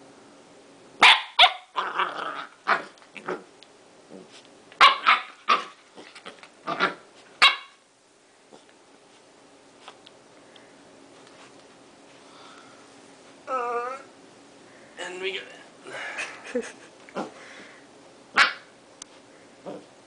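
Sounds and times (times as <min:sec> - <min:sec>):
puppy barking: 0:01.0 - 0:02.0, 0:04.8 - 0:05.8, 0:06.7 - 0:07.8, 0:18.4 - 0:18.7
puppy bark-growl: 0:01.0 - 0:03.5, 0:04.2 - 0:07.8, 0:18.3 - 0:18.7, 0:19.6 - 0:19.9.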